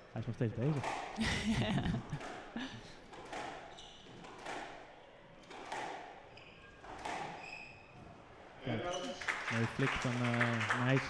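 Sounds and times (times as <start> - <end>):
squash ball thwacks: 0.7 - 1.2, 3.1 - 4.8, 5.4 - 6.2, 6.8 - 7.4
shoes squeaking on wooden floor: 3.1 - 4.5, 5.4 - 9.2.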